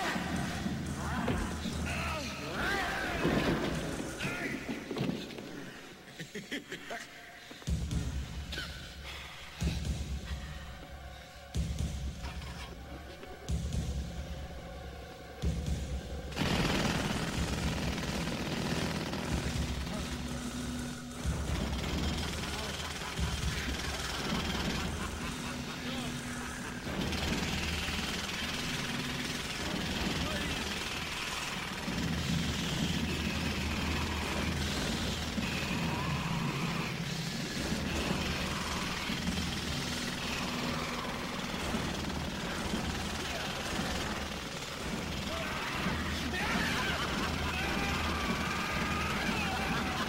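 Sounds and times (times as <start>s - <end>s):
jackhammer hammering: 15.6s - 50.0s.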